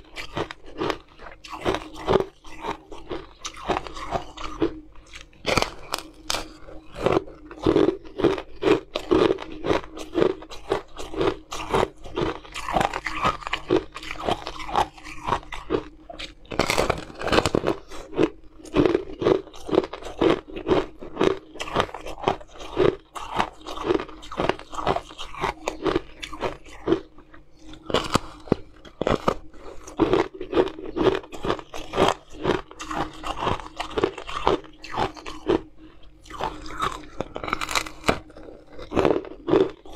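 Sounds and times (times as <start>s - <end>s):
ice crunching in teeth: 0.0s - 39.9s.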